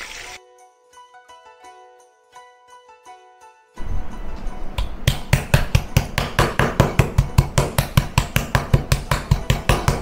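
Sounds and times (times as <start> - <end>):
meat pounder beating meat: 5.0 - 10.0.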